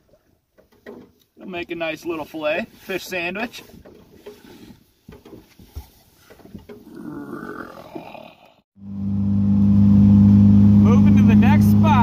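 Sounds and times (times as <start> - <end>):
boat motor running: 8.8 - 12.0.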